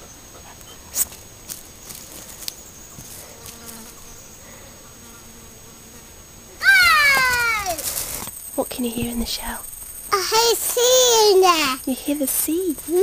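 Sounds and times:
fly buzzing: 1.0 - 8.4.

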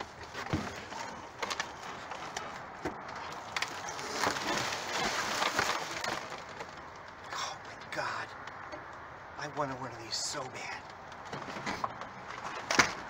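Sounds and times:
cardboard boxes rustling and scraping: 0.0 - 6.7.

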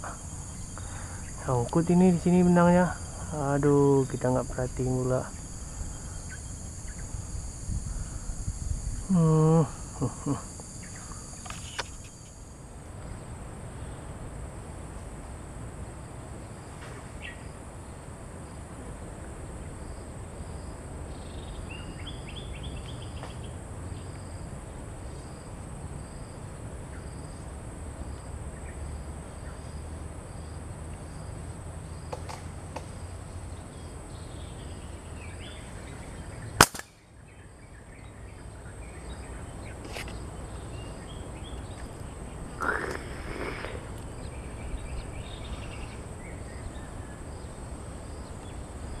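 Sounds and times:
insects buzzing and chirping: 0.0 - 49.0
slingshot snap: 36.6 - 37.0
short bird calls: 42.5 - 43.9.

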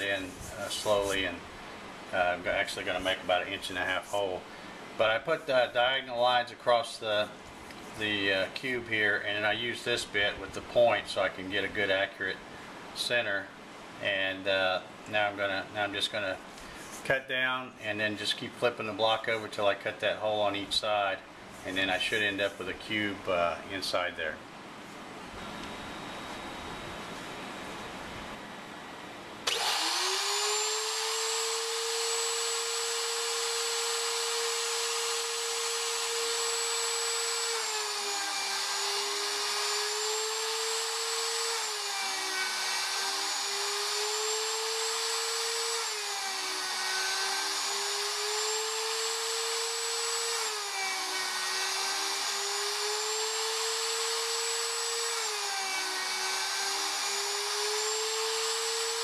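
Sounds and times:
router motor whining: 29.4 - 59.0.

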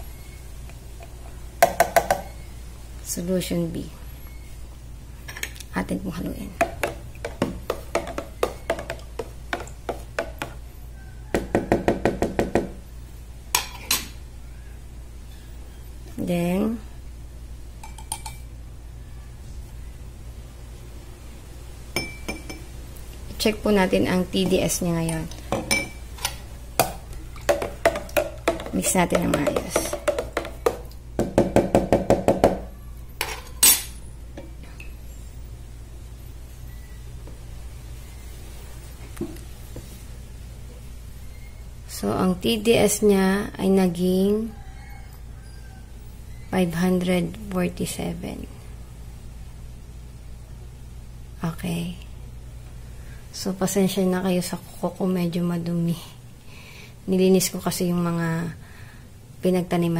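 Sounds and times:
spoon knocking plastic pitcher: 1.6 - 2.3, 6.6 - 10.6, 26.8 - 32.6.

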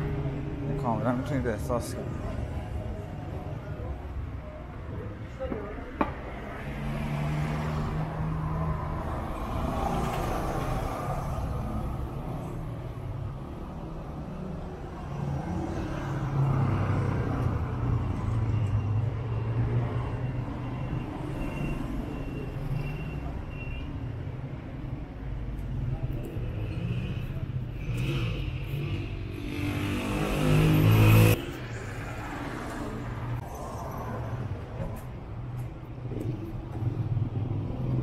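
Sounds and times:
road noise hum: 0.0 - 38.0
passing car engines: 6.1 - 18.8, 25.7 - 38.0.

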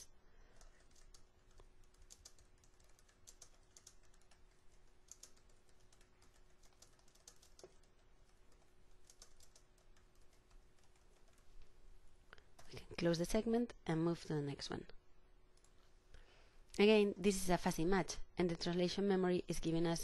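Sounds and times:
faint steady hum: 0.0 - 20.0
computer keyboard typing: 0.6 - 11.5.

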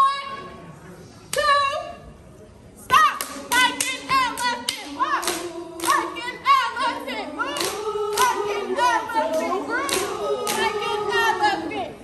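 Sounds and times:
group chanting and yelling: 2.8 - 12.0
claps and stomps: 7.6 - 8.4, 9.3 - 10.7.

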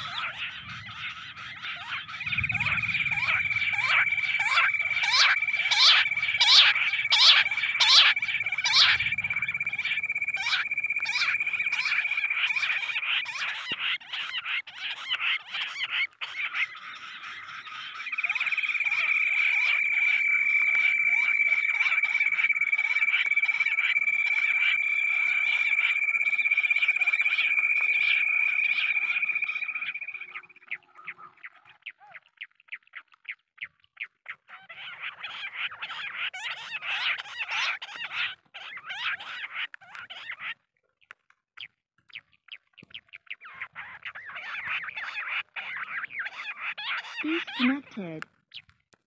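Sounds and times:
quail calls over loudspeaker: 0.0 - 13.4, 46.5 - 48.2
steady high whine: 2.0 - 13.3, 18.0 - 30.4.

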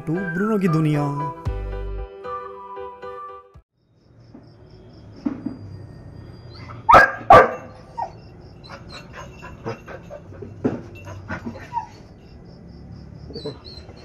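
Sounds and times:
puppy yipping: 6.5 - 10.4, 11.0 - 12.1, 13.3 - 14.0
puppy barking: 6.8 - 10.2.

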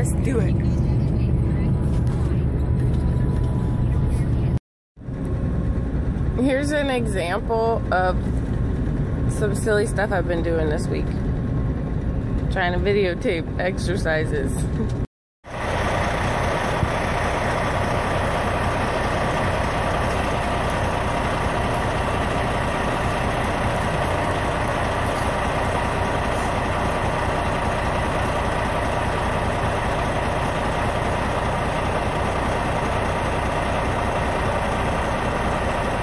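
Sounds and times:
truck engine idling: 14.6 - 36.0.

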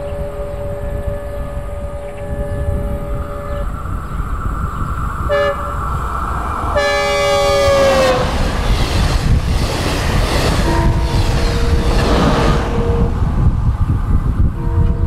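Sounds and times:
train horn blasts: 0.0 - 3.8, 5.2 - 6.1, 6.7 - 8.6, 10.6 - 13.4, 14.6 - 15.0
rushing train noise: 0.0 - 15.0
steady low rumble: 0.0 - 15.0.

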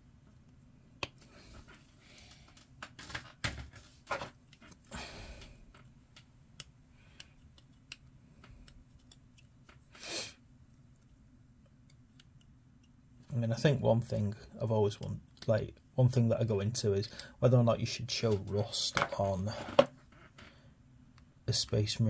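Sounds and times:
handling and scraping noises: 18.1 - 20.2.

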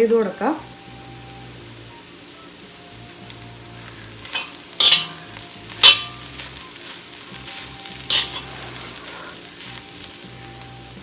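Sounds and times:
faint sizzle: 0.0 - 11.0
spoon scraping a pan: 4.2 - 9.7
spoon stirring in a wok: 4.2 - 10.2.

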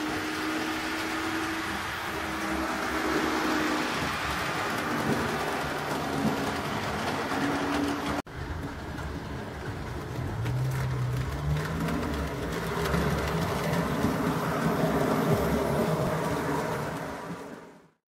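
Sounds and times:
model train motor hum: 0.0 - 8.1
train wheels on track: 0.0 - 18.0.

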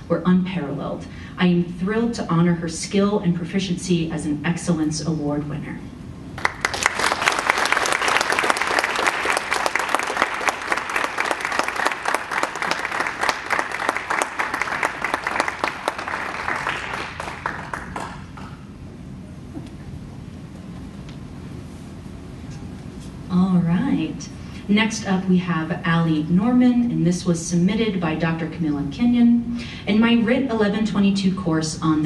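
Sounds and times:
audience applauding: 6.4 - 18.7.

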